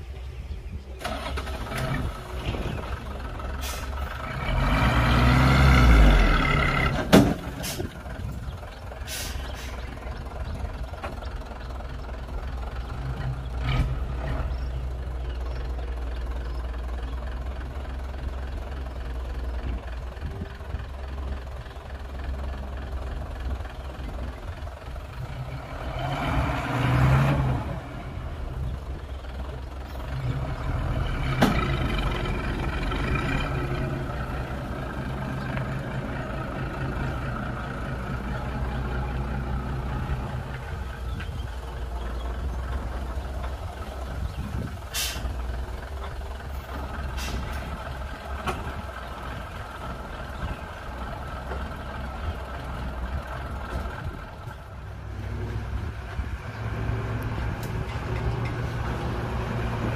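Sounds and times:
heavy diesel engines droning: 0.0 - 59.9
engine revving: 1.0 - 7.3, 13.0 - 14.8, 25.2 - 41.2, 54.8 - 59.9.

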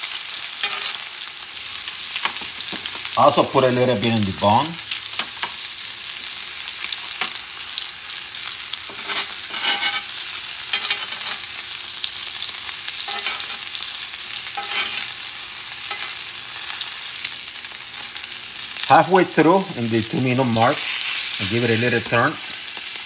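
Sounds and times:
steak sizzling in a pan: 0.0 - 23.0
metal spoon scraping and tapping pan: 0.6 - 1.0, 8.9 - 11.5, 13.1 - 13.7, 14.6 - 15.1, 15.8 - 16.2.

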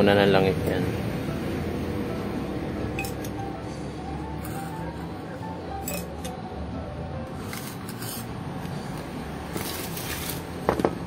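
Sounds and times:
glass jar and tools clinking: 5.8 - 6.3.

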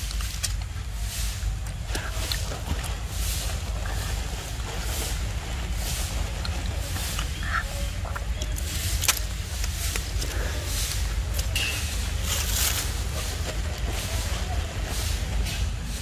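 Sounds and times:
rustling against microphone: 0.0 - 16.0.

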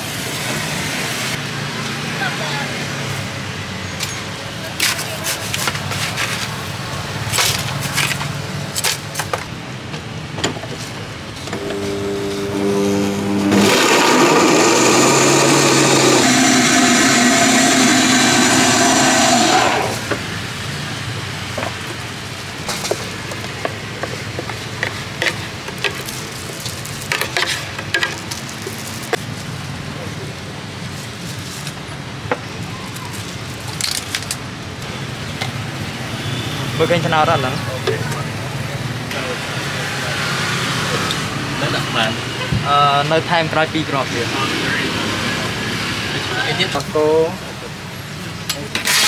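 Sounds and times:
blender motor running: 11.6 - 20.1.

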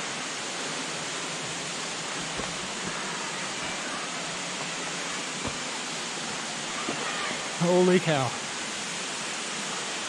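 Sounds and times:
waterfall rushing: 0.0 - 10.0
faint thuds: 2.2 - 3.1, 5.4 - 5.8.

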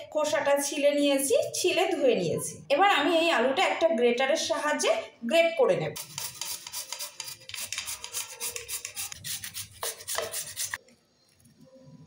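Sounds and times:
potato rasping on metal grater: 6.0 - 10.8.

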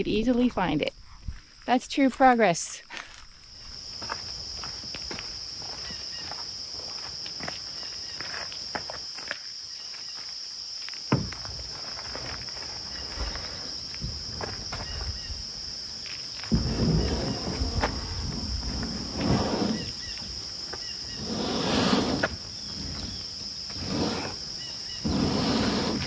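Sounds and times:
high-pitched insect chorus: 0.7 - 26.0
footsteps: 4.0 - 9.4.

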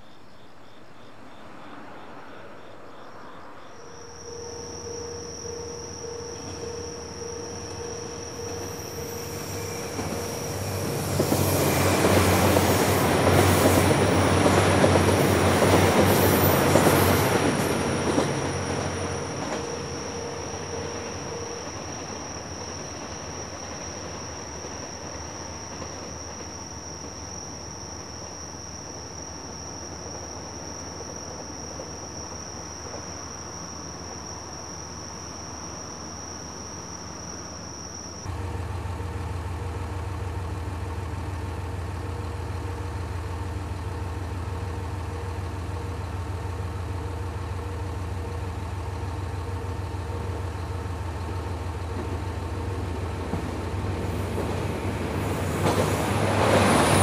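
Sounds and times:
crickets trilling: 0.0 - 38.3, 40.2 - 57.0
diesel railcar idling: 4.2 - 27.2, 38.3 - 57.0.

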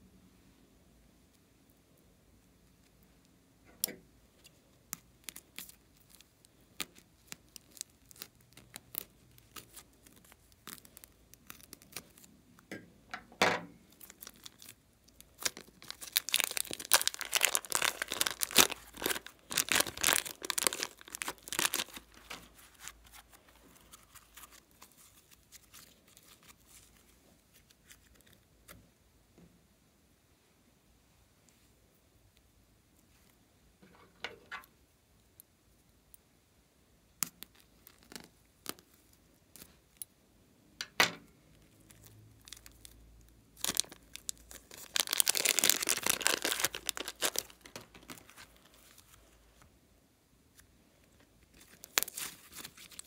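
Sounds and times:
plastic and slime rustles: 4.3 - 12.7, 13.8 - 28.8, 37.2 - 40.0, 41.5 - 49.8, 50.5 - 53.0
plastic bag crinkling and tearing: 5.2 - 12.3, 13.9 - 28.4, 41.6 - 43.0, 43.6 - 49.3, 51.5 - 53.0.

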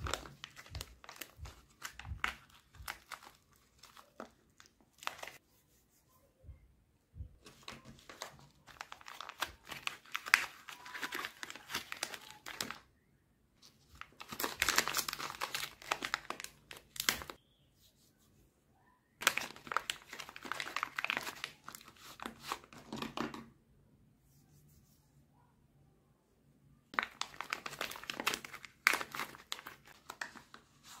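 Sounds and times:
paper wrapper crinkling and tearing: 0.0 - 5.4, 7.4 - 12.9, 13.6 - 17.4, 19.2 - 23.2, 26.9 - 31.0.

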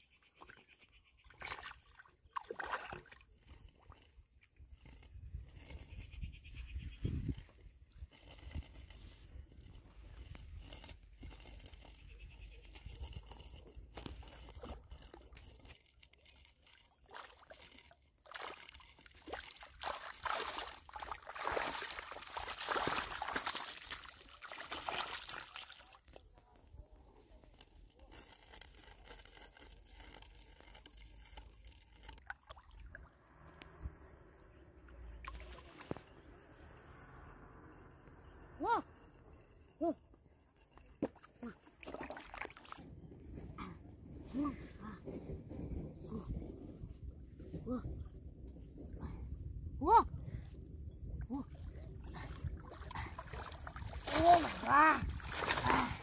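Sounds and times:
fish splashing in water: 18.2 - 26.0, 52.8 - 56.0.

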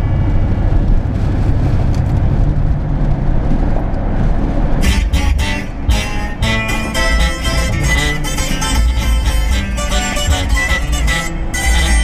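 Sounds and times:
car engine and road noise: 0.0 - 12.0
strummed guitar music: 4.8 - 12.0.

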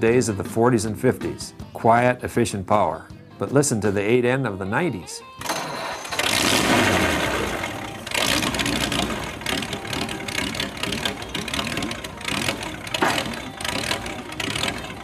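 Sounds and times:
tractor engine running: 5.4 - 15.0.

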